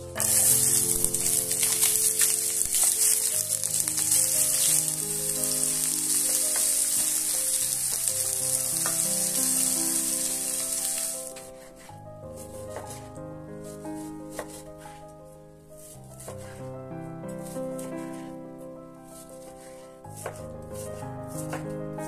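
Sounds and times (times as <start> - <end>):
soft background music: 0.0 - 22.0
spatula tapping pan: 0.2 - 10.8
onions sizzling in oil: 0.2 - 11.6.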